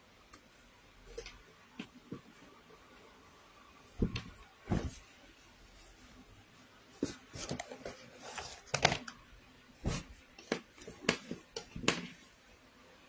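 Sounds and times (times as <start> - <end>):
rustling: 3.9 - 8.8.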